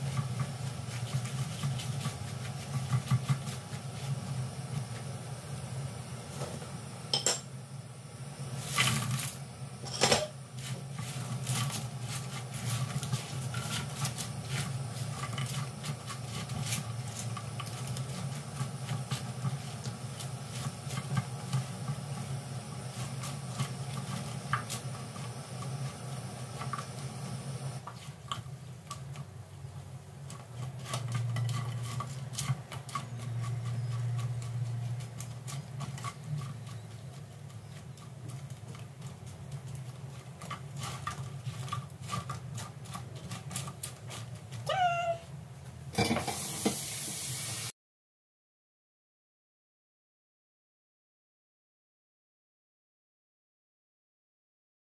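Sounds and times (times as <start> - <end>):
utensils knocking and scraping pan: 0.0 - 3.9, 9.8 - 22.2, 30.3 - 44.6, 46.0 - 46.8
food sizzling in oil: 46.0 - 47.7.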